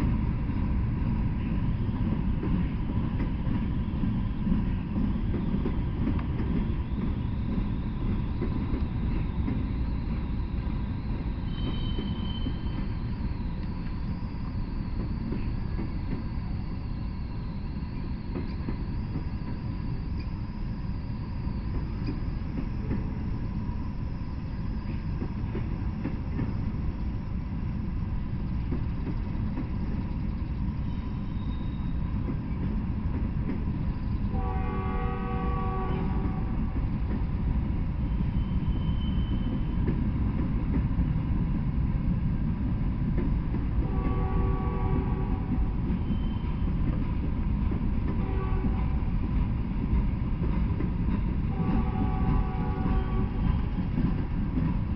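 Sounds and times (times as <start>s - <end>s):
steel wheels rumbling on rail: 0.0s - 54.9s
high-pitched wheel squeal: 5.1s - 21.9s, 38.0s - 39.8s, 45.9s - 46.9s.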